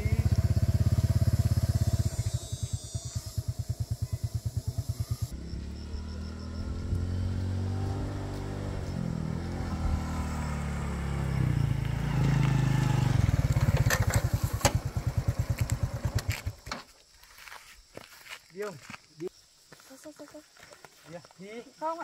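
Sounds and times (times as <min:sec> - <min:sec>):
small motorbike engine: 0:00.0 - 0:16.8.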